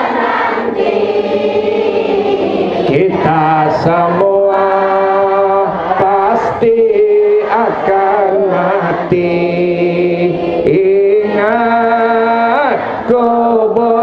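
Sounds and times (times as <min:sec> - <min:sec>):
man chanting into a microphone: 0:02.9 - 0:14.0.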